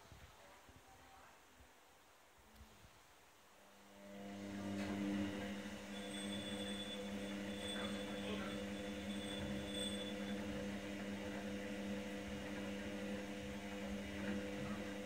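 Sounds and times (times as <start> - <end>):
faint high whine: 3.6 - 15.0.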